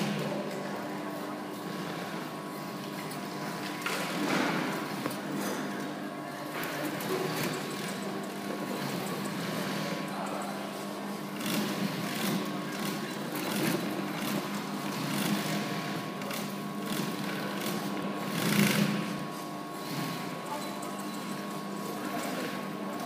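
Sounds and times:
steady motor hum: 0:00.0 - 0:23.0
sewing machine stitching: 0:11.3 - 0:21.4.

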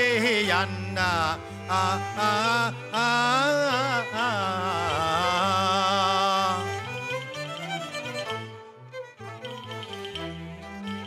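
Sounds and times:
opera singing with heavy vibrato: 0:00.0 - 0:06.7
low instrumental accompaniment: 0:00.0 - 0:11.0.

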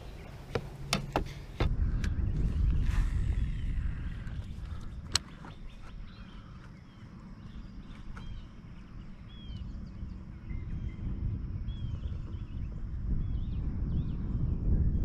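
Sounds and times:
wind rumble on microphone: 0:00.0 - 0:15.0
bird chirps: 0:03.4 - 0:11.1.

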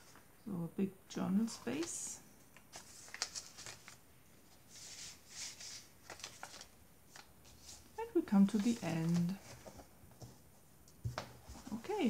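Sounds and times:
paper pages rustling: 0:01.5 - 0:10.5.

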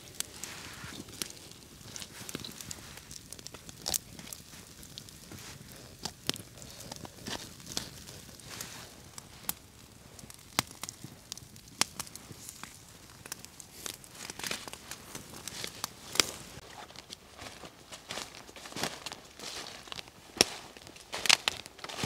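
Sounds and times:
fire hiss: 0:00.0 - 0:16.6
campfire crackling and popping: 0:00.0 - 0:22.0.

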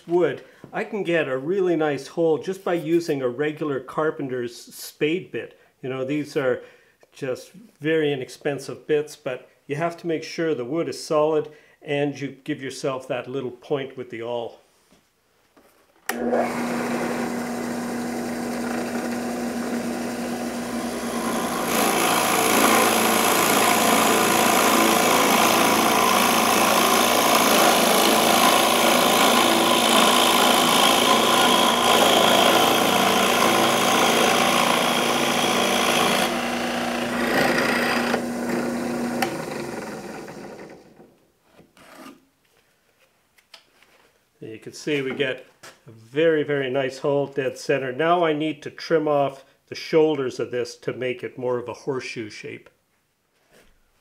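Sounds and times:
drill bit rasping into wood: 0:16.1 - 0:40.7
drill press motor humming: 0:16.1 - 0:41.0.

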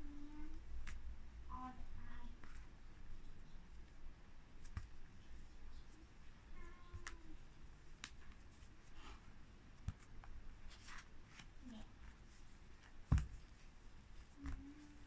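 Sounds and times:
light clicks of pages: 0:00.5 - 0:01.1, 0:02.1 - 0:04.0, 0:04.6 - 0:09.2, 0:09.8 - 0:15.0
paper pages rustling: 0:09.8 - 0:15.0.

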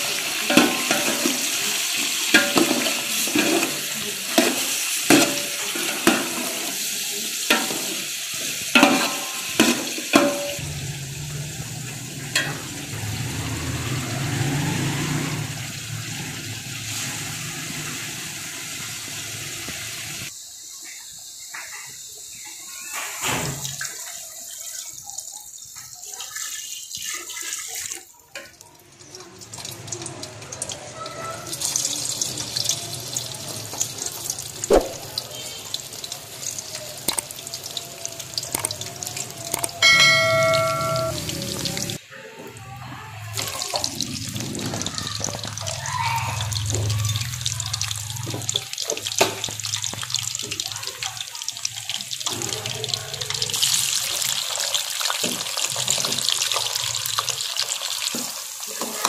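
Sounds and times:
oil sizzling with frying meat: 0:00.0 - 0:42.1, 0:42.9 - 0:59.0
electronic tone: 0:39.5 - 0:41.8.

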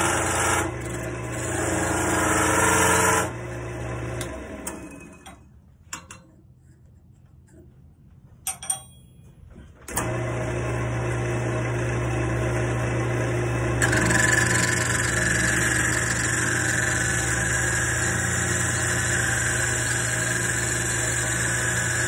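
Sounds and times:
wood lathe motor: 0:00.0 - 0:04.9, 0:09.9 - 0:22.0.

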